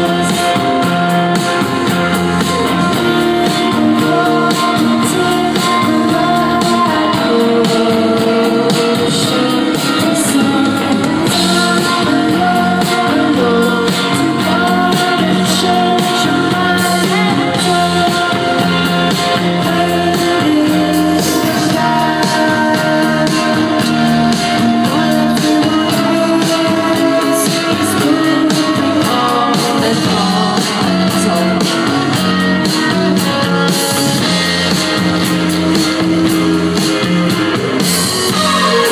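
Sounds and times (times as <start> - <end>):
drums: 0.0 - 38.9
electric guitars: 0.0 - 38.9
woman singing: 0.0 - 38.9.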